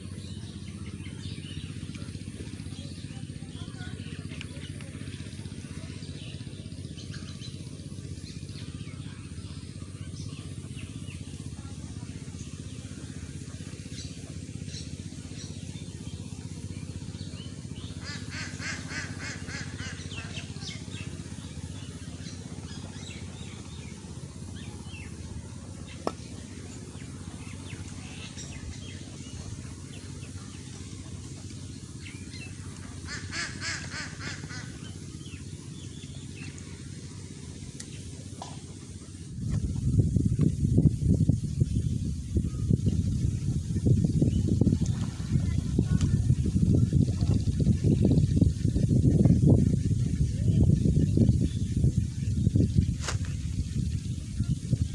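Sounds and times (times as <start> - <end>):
birds calling: 0.0 - 54.9.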